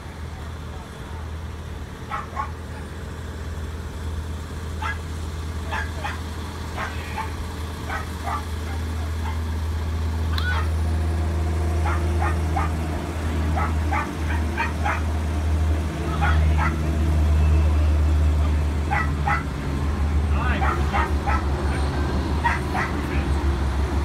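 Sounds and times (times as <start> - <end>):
low motor hum: 0.0 - 24.0
dogs barking and yipping: 2.0 - 2.9, 4.8 - 5.1, 5.7 - 9.5, 10.3 - 10.8, 11.8 - 12.9, 13.5 - 15.2, 16.2 - 16.9, 18.8 - 19.6, 20.5 - 23.1
dog yelp: 2.1 - 2.6, 4.8 - 5.0, 5.7 - 6.2, 6.8 - 9.4, 10.3 - 10.7, 11.8 - 12.8, 13.6 - 15.0, 16.2 - 16.8, 18.9 - 19.5, 20.6 - 21.5, 22.4 - 23.0.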